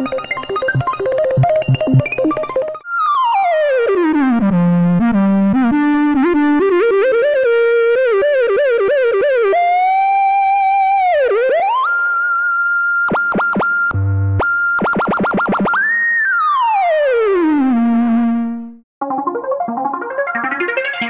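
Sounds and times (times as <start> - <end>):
chordal keyboard: 0.0 - 2.8.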